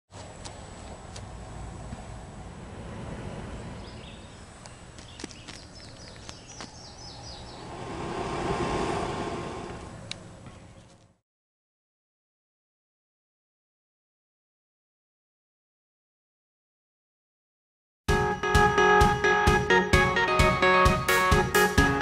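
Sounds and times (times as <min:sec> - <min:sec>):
small bird chirping: 0:03.7 - 0:07.8
broad swell of noise: 0:07.4 - 0:10.3
steady low rumble: 0:07.4 - 0:10.4.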